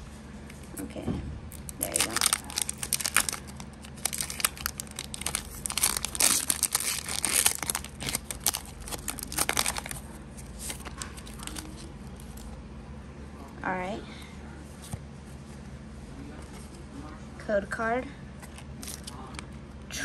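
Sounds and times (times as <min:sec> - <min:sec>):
foil wrapper crinkling and tearing: 0:01.5 - 0:12.5.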